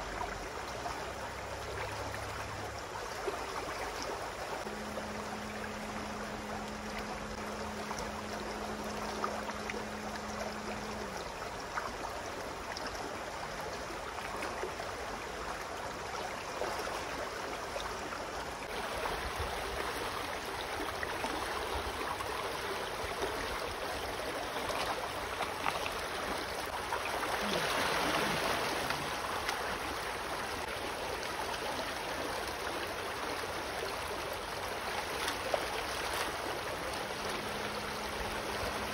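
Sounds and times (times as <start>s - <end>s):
water rushing over stones: 13.3s - 38.9s.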